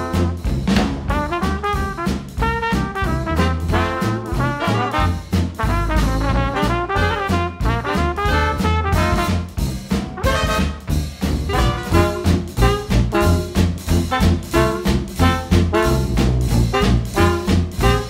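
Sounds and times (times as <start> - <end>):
upbeat swing music with brass: 0.0 - 18.0.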